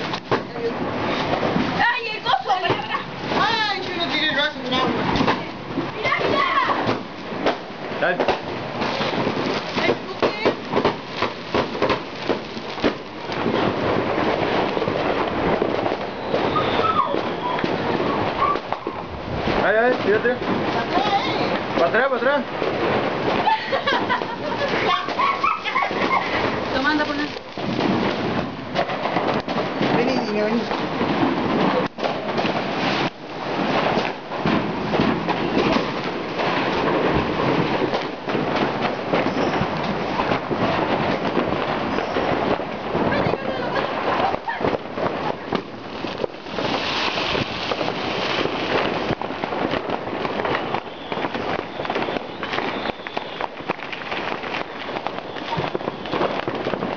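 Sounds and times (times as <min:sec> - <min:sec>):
crackle and rumble of explosions: 0:00.0 - 0:56.9
firework bangs: 0:00.0 - 0:56.9.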